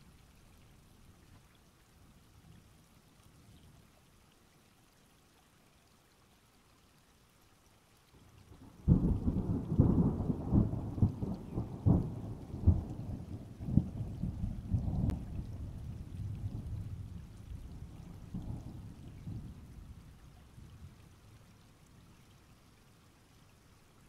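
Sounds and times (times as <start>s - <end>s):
thunder clap and rumble: 8.8s - 19.6s.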